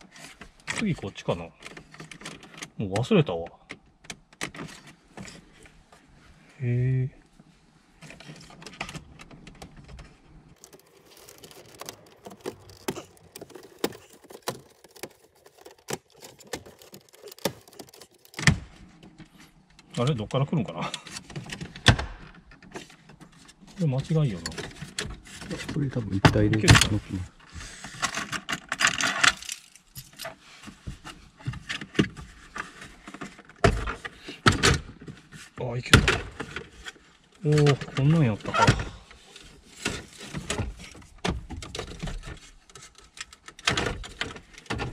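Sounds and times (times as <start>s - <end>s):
plastic trim clicking and knocking: 10.6s - 18.7s.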